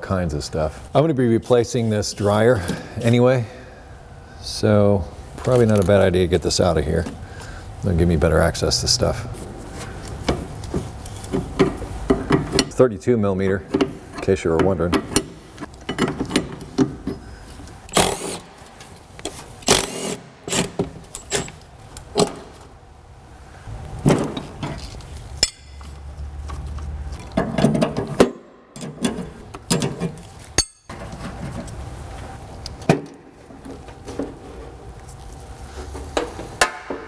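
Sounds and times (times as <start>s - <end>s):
metal parts clanking and rattling: 19.6s - 22.4s, 24.0s - 26.1s, 27.2s - 31.7s.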